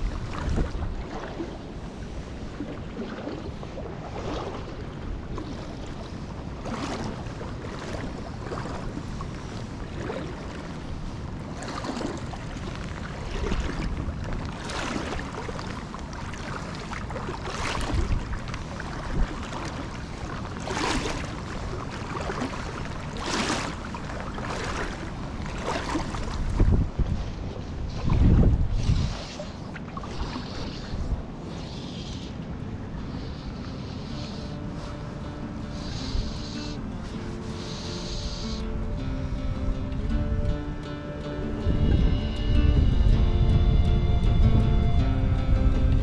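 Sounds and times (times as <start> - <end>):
creek water running: 0.0 - 46.0
wind buffeting microphone: 0.0 - 46.0.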